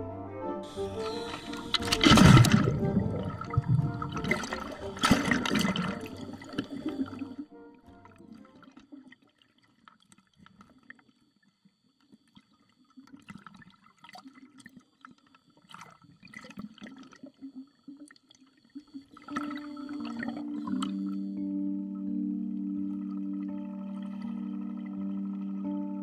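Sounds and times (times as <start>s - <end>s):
music: 0.0s - 8.8s, 19.3s - 26.0s
bubbles crackling: 0.7s - 7.4s, 13.0s - 21.2s, 22.8s - 25.8s
seawater sloshing: 0.7s - 7.4s.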